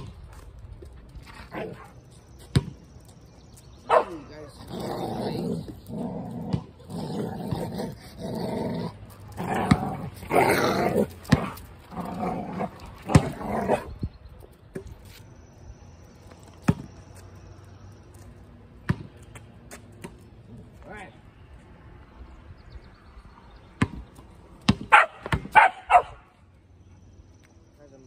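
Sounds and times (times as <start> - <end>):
dogs growling: 4.5 - 14.0.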